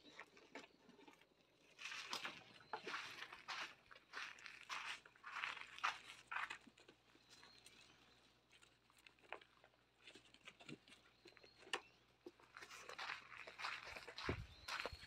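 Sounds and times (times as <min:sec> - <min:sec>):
puppies chewing food: 0:00.0 - 0:15.0
paw steps on dirt: 0:12.4 - 0:15.0.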